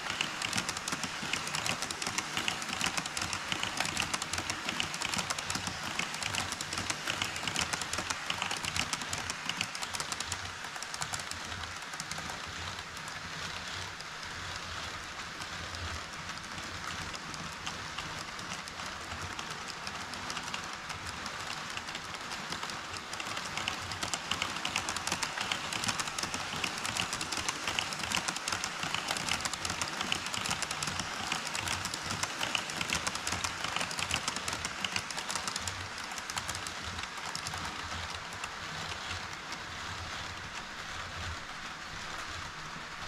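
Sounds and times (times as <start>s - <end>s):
model train wheels clicking on rails: 0.0s - 43.0s.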